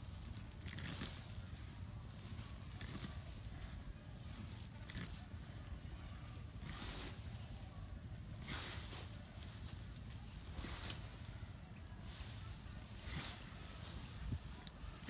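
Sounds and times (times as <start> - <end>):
high-pitched insect chorus: 0.0 - 15.0
rustles and scrapes in leaf litter: 0.0 - 15.0.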